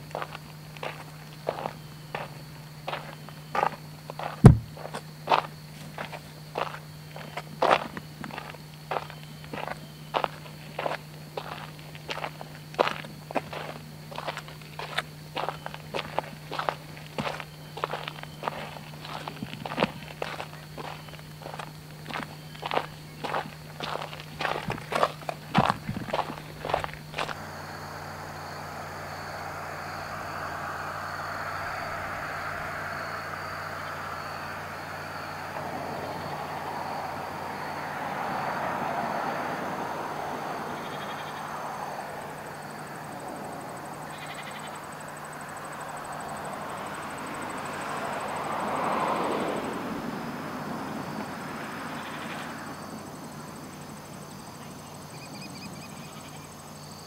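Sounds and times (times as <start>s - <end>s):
insects trilling: 0.0s - 57.0s
low hum: 15.5s - 36.8s
broad rushing noise: 17.9s - 37.6s.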